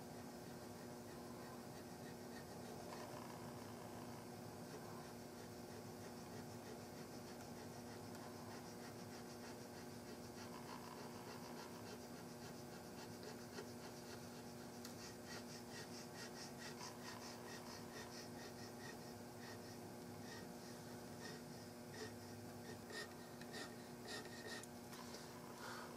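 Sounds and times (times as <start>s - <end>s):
steady low hum: 0.0s - 25.9s
checkering tool scratching wood: 4.6s - 24.7s.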